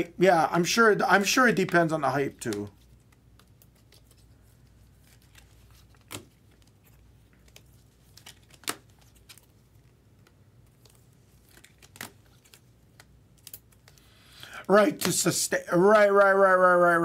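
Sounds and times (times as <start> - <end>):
light rustling of wrappers: 2.4 - 14.6
soft clicks of trading cards: 2.4 - 15.2.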